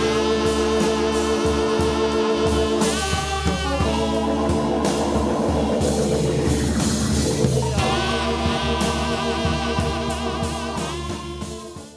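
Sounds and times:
drums: 0.0 - 11.9
organ chords: 0.0 - 11.9.

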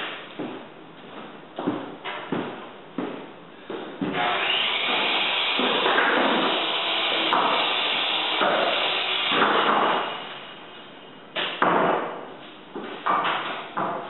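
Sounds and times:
floorboards knocking and clattering: 0.4 - 4.2, 11.4 - 14.0
power tool running: 4.2 - 10.4.

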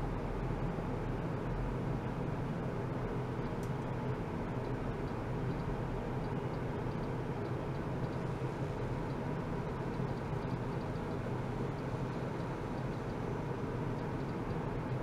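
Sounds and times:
low rumbling background noise: 0.0 - 15.0
faint light ticks: 3.4 - 3.9, 4.6 - 8.3.

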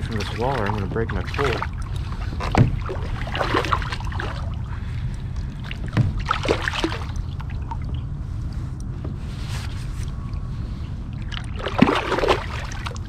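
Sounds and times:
fish splashing at water surface: 0.0 - 4.6, 5.6 - 7.8, 11.2 - 13.0
low rumble: 0.0 - 13.0.

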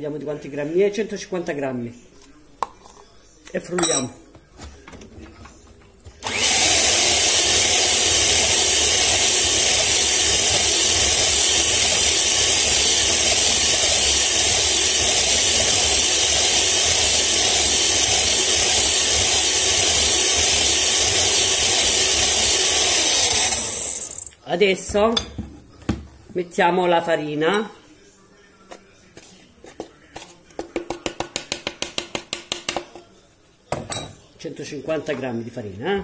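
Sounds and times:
electric hand mixer running: 6.2 - 24.3.

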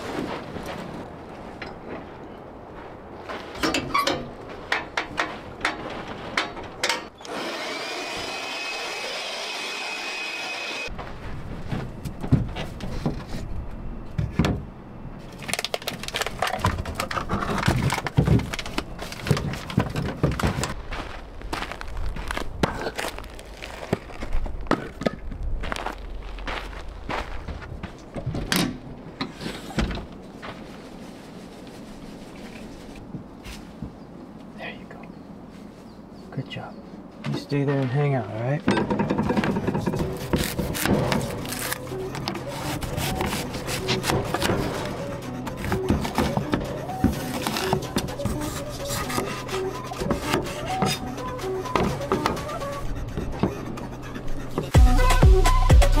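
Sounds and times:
small blower whining: 7.2 - 10.9
knocks and bumps: 11.6 - 13.4, 38.6 - 41.3.

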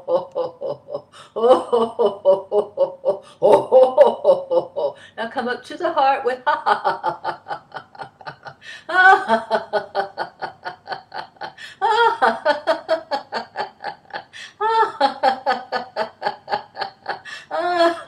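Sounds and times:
woman laughing: 0.0 - 5.0, 6.3 - 18.0.

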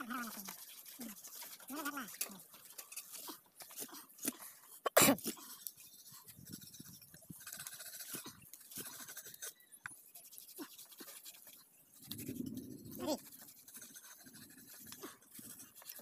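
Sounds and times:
knife scraping pig skin: 5.2 - 16.0.

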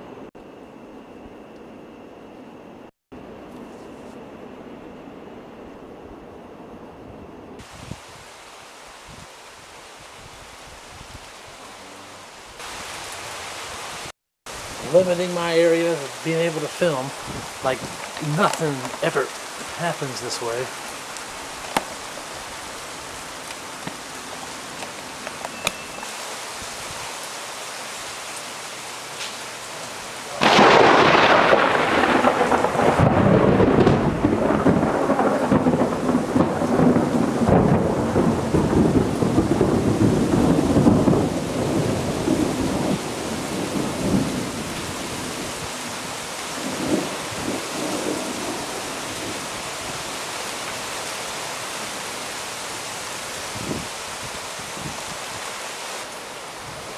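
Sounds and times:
steady rain: 7.5 - 56.9
thunder clap rumbling: 30.3 - 50.0.

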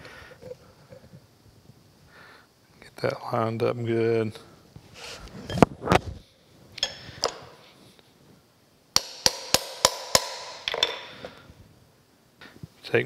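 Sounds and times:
sharp metal taps: 9.0 - 11.2.

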